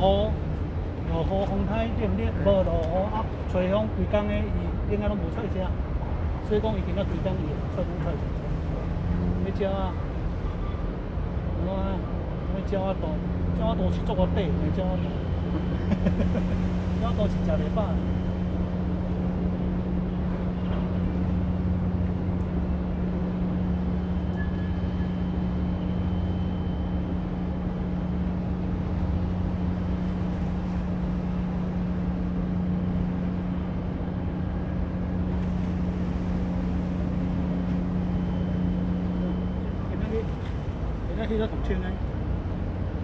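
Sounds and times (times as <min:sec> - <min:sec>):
low engine drone: 0:00.0 - 0:43.0.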